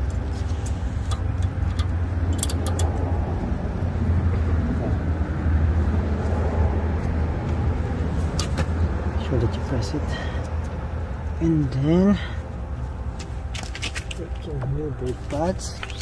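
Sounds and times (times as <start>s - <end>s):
steady low rumble: 0.0s - 16.0s
light metal clicks: 1.1s - 3.0s.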